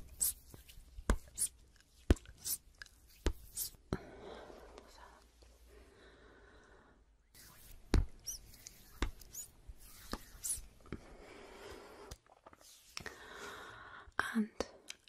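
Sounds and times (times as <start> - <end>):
short high squeaks: 7.4 - 10.7.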